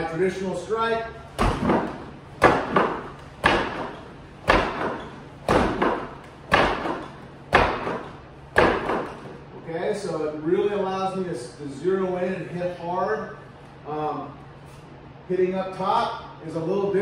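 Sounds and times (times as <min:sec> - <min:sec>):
punches thudding on striking post: 0:01.3 - 0:09.3.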